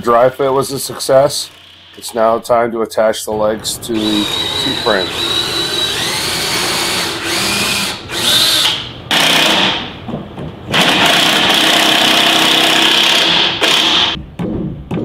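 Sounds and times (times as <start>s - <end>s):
cordless drill boring into wood: 4.0s - 9.8s, 10.8s - 14.2s.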